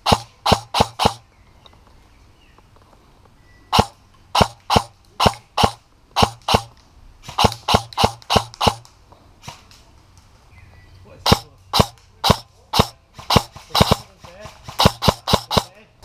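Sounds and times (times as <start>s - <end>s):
airsoft rifle shots: 0.0s - 1.3s, 3.7s - 9.7s, 11.2s - 15.8s.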